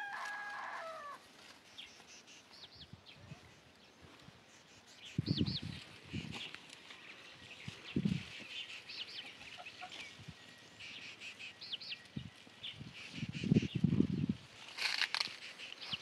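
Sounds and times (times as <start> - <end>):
chickens clucking: 8.0 - 11.8.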